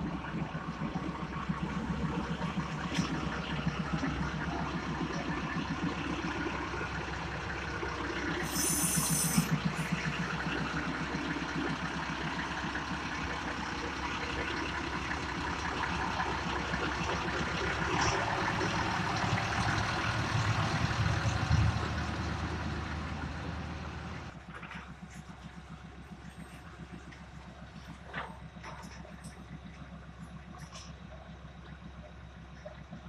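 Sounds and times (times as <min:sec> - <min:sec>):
train diesel engine running: 0:00.0 - 0:33.0
brief high hiss: 0:08.4 - 0:09.5.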